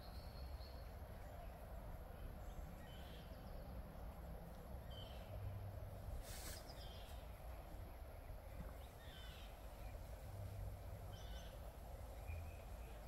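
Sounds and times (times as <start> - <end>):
low background rumble: 0.0 - 13.0
brief hiss: 6.2 - 6.9.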